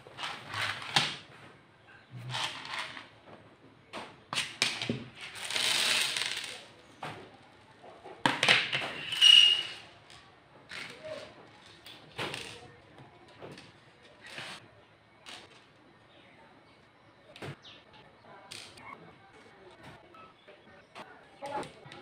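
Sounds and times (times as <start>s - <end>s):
plastic chess pieces clattering: 4.4s - 6.7s.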